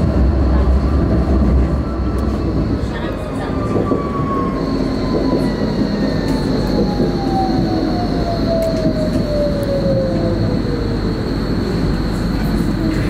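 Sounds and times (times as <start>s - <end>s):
falling whine: 0.0s - 13.0s
tram rumbling on rails: 0.0s - 13.0s.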